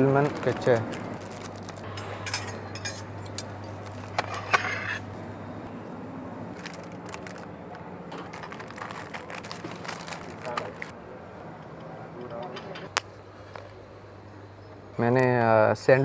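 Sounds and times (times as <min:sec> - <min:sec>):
cling film rustling: 0:00.0 - 0:01.9, 0:06.5 - 0:10.9
low hum: 0:00.3 - 0:15.1
serving tongs and plates clinking: 0:01.8 - 0:05.1.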